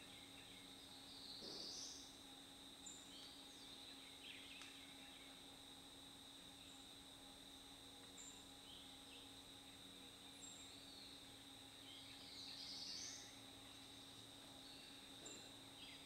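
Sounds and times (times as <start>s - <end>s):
birdsong: 0.0s - 2.1s
high insect drone: 0.0s - 16.0s.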